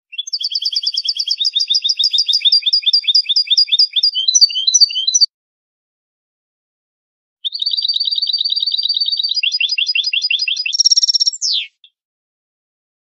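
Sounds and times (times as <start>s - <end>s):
goldfinch singing: 0.1s - 5.3s, 7.4s - 11.9s.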